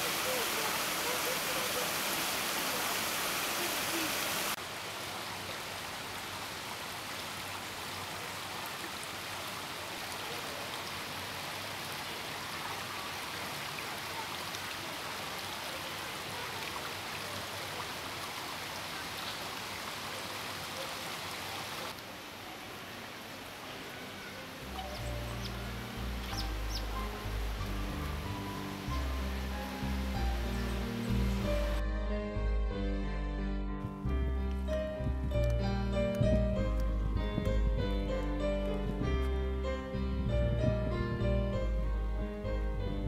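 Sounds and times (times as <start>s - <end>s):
stream splashing over rocks: 0.0s - 31.8s.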